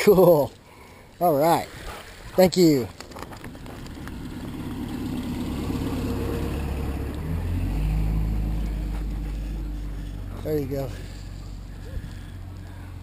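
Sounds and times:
motorboat engine running: 3.2s - 13.0s.

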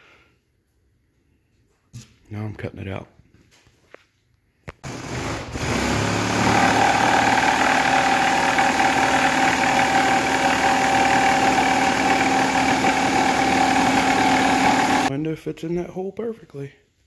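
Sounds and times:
jigsaw cutting plywood: 4.9s - 15.1s.

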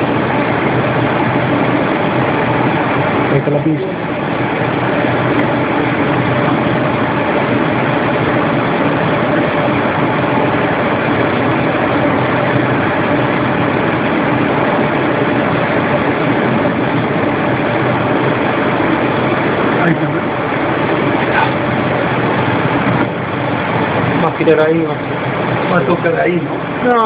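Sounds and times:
machine running loudly: 0.0s - 27.0s.

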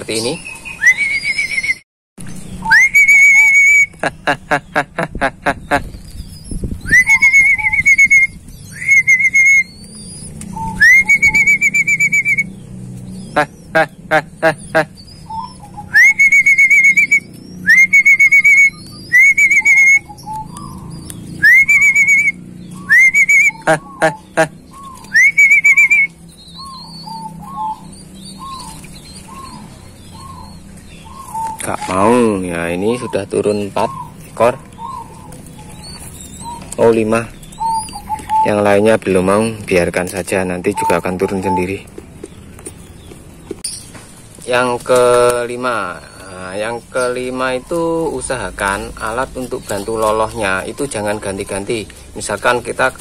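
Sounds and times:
doves cooing: 0.0s - 43.6s, 44.3s - 53.0s
man whistling bird call: 0.4s - 1.8s, 2.6s - 4.0s, 6.3s - 12.6s, 14.6s - 20.8s, 21.4s - 28.7s.

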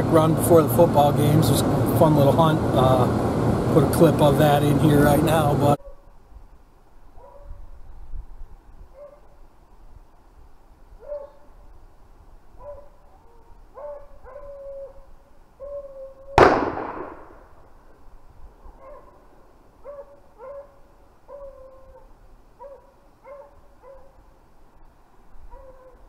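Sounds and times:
dogs baying: 12.6s - 16.1s, 19.8s - 24.2s, 25.5s - 26.0s
gunshot with echo: 16.4s - 17.6s.

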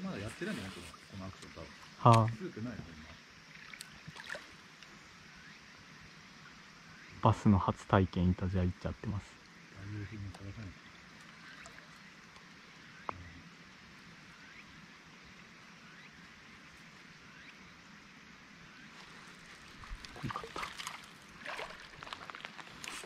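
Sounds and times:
water trickling and lapping: 0.0s - 6.9s, 9.2s - 23.0s
splashy knocks and clatter: 20.0s - 22.3s.

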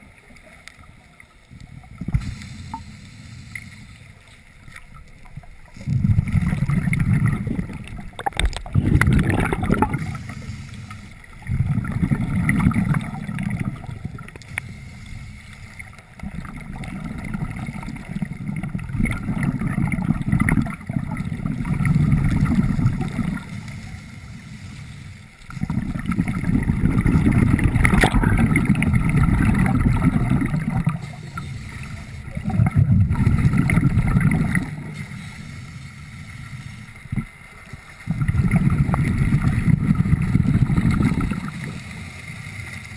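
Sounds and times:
regulator bubbling exhalations: 5.8s - 14.8s, 25.5s - 35.0s, 38.1s - 41.7s.

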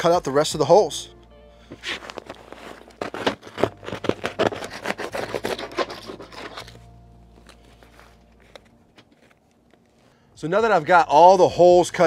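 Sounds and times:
foil crinkling and tearing: 1.7s - 10.2s
knife cutting foil insulation: 1.8s - 6.9s.

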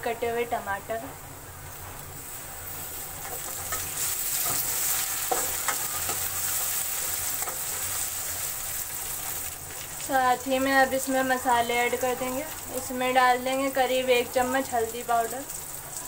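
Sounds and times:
tomatoes sizzling in hot oil: 1.7s - 16.0s
spatula scraping a pan: 3.2s - 8.2s.

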